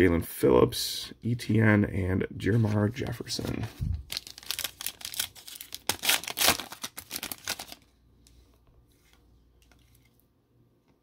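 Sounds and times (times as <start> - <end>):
soft rustles of cards: 2.4 - 10.3
wrapper tearing and crinkling: 4.1 - 7.8.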